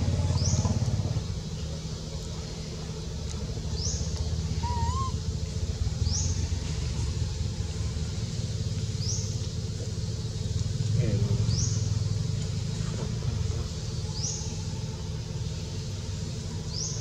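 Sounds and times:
engine rumbling: 0.0 - 17.0
high rising chirp: 4.6 - 5.2
wavering whistle: 4.6 - 5.2.

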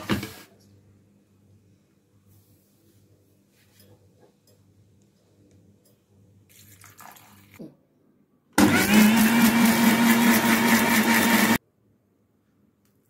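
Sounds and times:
mixer grinder motor hum: 8.6 - 11.6.

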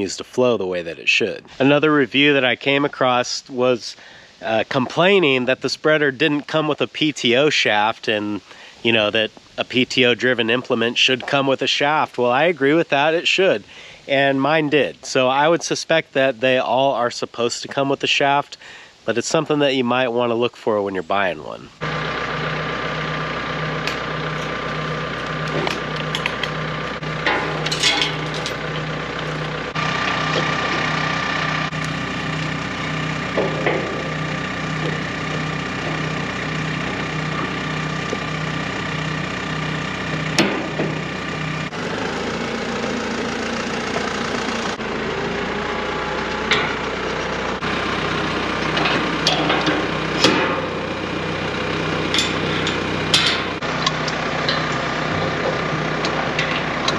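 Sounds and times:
tractor engine idling: 0.0 - 17.8, 21.8 - 56.9
metal clinks and knocks: 25.5 - 28.9, 33.3 - 36.2, 52.1 - 55.6.

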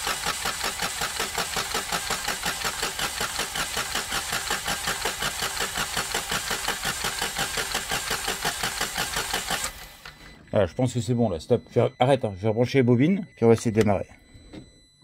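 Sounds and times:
starter motor cranking engine: 0.0 - 10.2.

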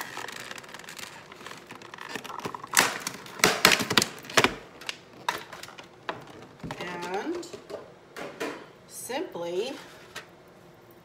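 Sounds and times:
plastic container clicking and crackling: 0.0 - 7.3.

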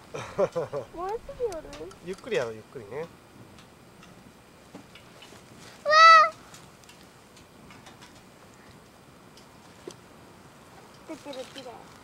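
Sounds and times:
campfire crackling: 0.0 - 12.0
short high-pitched cry: 5.9 - 6.4.

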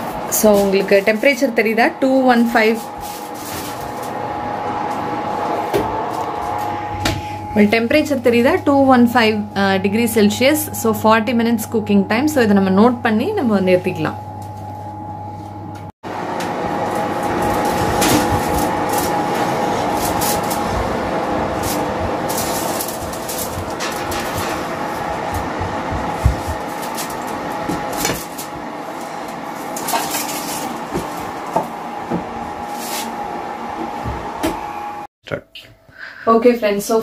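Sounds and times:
kitchen fan whirring: 0.0 - 35.1.

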